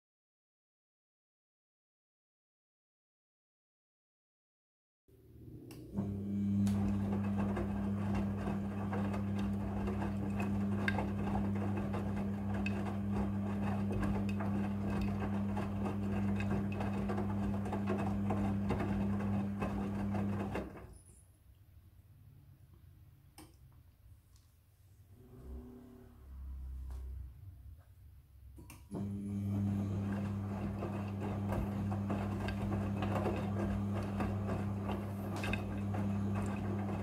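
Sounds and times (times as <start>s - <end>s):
washing machine motor hum: 5.2s - 21.0s, 28.6s - 37.0s.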